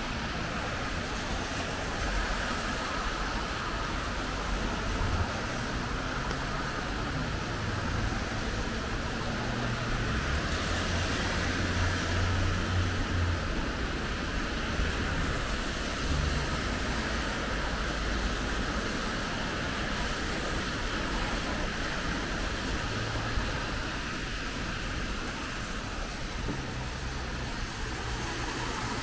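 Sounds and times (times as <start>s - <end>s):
rain on a wet street: 0.0s - 29.0s
vehicle engine rumble: 0.0s - 29.0s.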